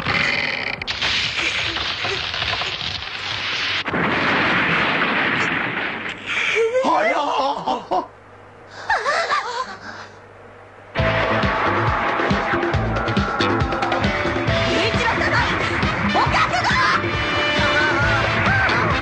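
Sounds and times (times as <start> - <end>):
tree crashing down: 0.2 - 6.2
music: 11.0 - 19.0
people shouting and laughing: 11.3 - 19.0.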